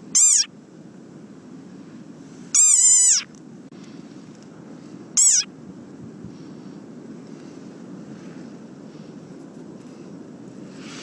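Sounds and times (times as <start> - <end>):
frog squeaky calls: 0.0 - 0.5, 2.5 - 3.3, 5.2 - 5.5.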